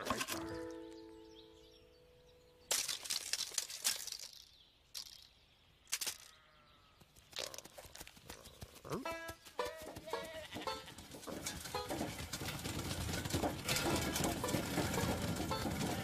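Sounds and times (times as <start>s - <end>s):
crunching crackling effects: 7.0s - 16.0s.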